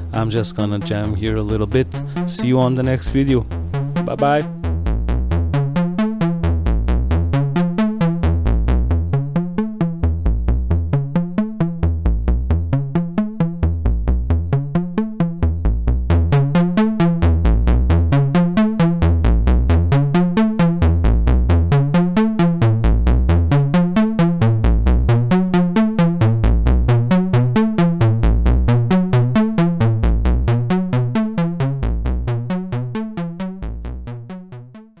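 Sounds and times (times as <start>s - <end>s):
fast sequenced synth notes: 0.0s - 35.0s
deep bass thump: 17.2s - 18.4s, 29.8s - 30.8s.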